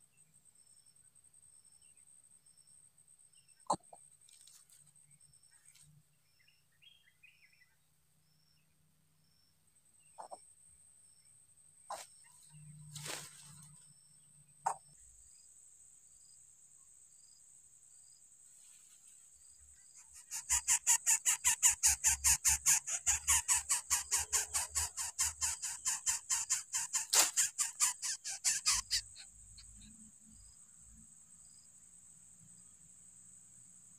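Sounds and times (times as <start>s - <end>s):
high insect trill: 14.8s - 33.9s
bird nestling begging calls: 20.0s - 29.7s.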